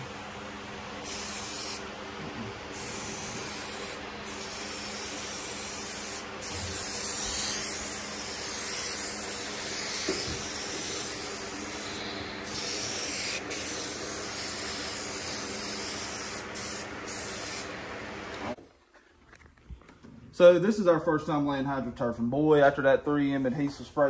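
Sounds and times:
aerosol spray hissing: 0:01.0 - 0:01.8, 0:02.7 - 0:17.7.

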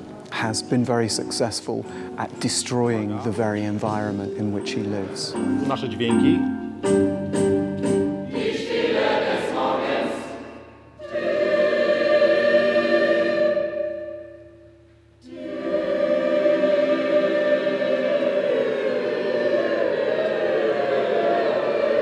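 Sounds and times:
choir singing sustained chords: 0:04.6 - 0:22.0.

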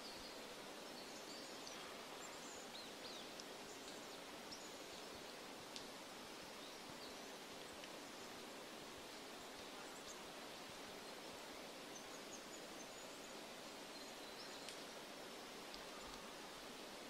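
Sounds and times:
forest ambience hiss: 0:00.0 - 0:17.0
light ticks: 0:03.1 - 0:04.0, 0:05.2 - 0:06.0, 0:07.5 - 0:08.0, 0:09.1 - 0:10.2, 0:14.4 - 0:15.0, 0:15.6 - 0:16.3.

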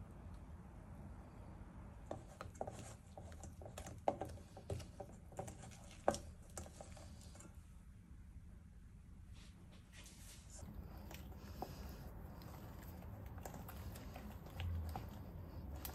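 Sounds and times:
spatula knocking bowl: 0:02.1 - 0:07.0, 0:11.0 - 0:15.9
spatula scraping dough in bowl: 0:02.1 - 0:07.6, 0:10.6 - 0:15.9
wet squelches: 0:10.5 - 0:15.9.

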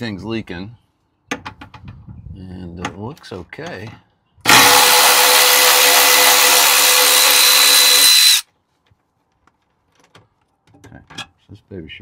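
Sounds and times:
electric ratchet running: 0:04.5 - 0:08.4.

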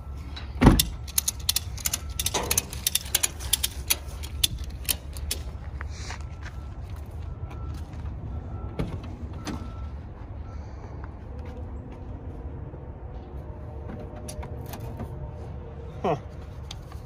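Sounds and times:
sharp clicks: 0:00.8 - 0:05.5.

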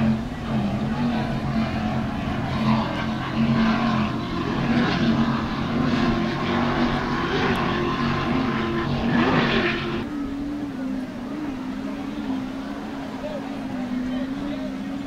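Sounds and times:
powerboat engines droning: 0:00.0 - 0:15.0.

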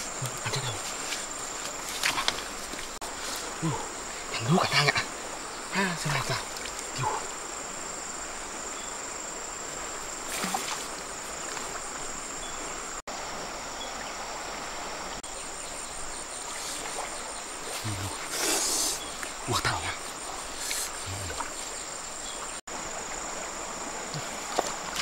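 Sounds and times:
insects droning: 0:00.0 - 0:25.0
river water running: 0:00.0 - 0:25.0.

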